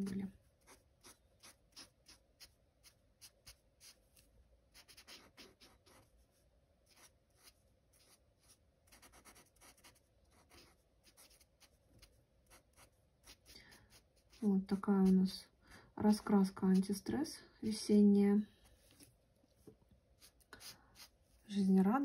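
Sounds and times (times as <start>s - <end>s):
marker scratching on paper: 0.6s - 15.3s.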